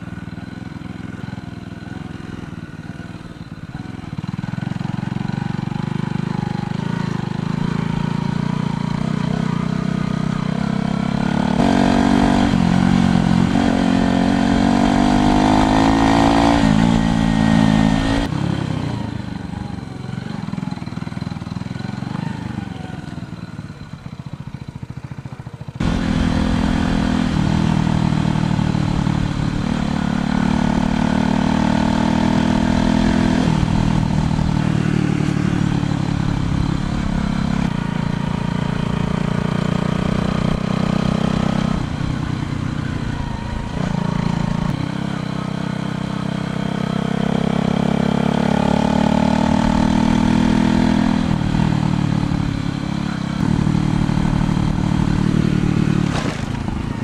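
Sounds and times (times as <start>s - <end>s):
motorcycle engine revving: 0.0s - 57.0s
wind and road noise: 0.0s - 57.0s.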